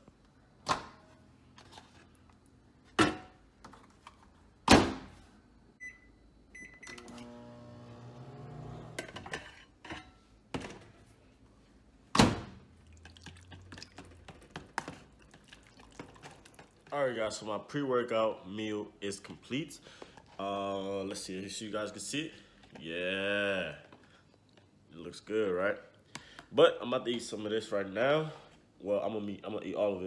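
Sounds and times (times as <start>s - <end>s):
microwave keypad beeps: 5.8s - 7.1s
microwave oven humming: 5.8s - 9.2s.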